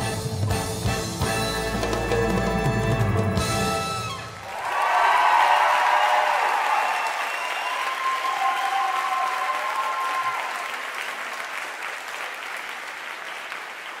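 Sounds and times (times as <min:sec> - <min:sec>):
audience applauding: 0:04.3 - 0:14.0.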